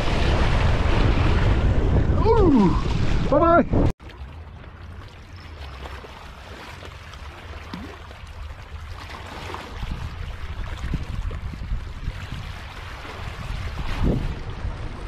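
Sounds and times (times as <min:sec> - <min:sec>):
wind rumbling on microphone: 0:00.0 - 0:03.9, 0:07.8 - 0:15.0
small waves lapping over rocks: 0:04.0 - 0:15.0.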